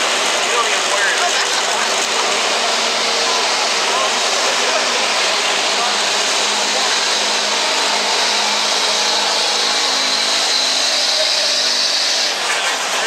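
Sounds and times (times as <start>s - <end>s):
diesel engine at full throttle: 0.0s - 13.0s
high whine: 0.0s - 13.0s.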